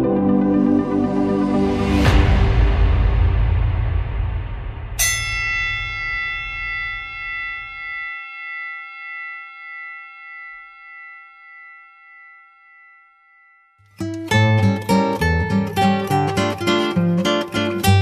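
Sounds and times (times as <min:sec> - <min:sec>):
electronic intro music: 0:00.0 - 0:05.1
bell-like chime ringing: 0:05.0 - 0:18.0.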